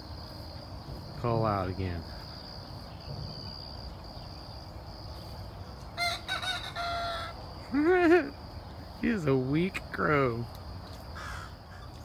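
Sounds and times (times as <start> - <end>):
rooster crowing: 6.0 - 7.4.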